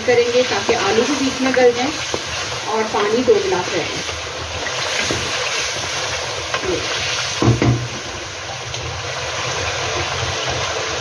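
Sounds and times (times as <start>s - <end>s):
food sizzling in hot oil: 0.0s - 11.0s
wooden spoon stirring: 0.2s - 5.7s
short knock: 7.4s - 7.9s.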